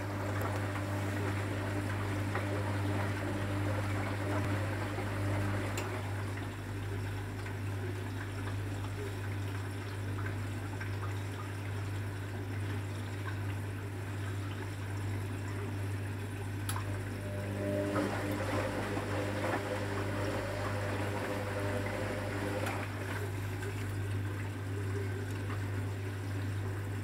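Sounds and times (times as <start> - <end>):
drum motor whine: 0.0 - 6.0, 17.0 - 22.9
water trickling in washing machine drum: 0.0 - 16.7, 17.8 - 27.0.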